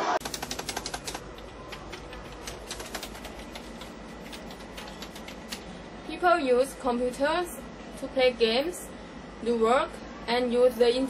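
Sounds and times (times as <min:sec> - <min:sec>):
keyboard typing: 0:00.2 - 0:05.6.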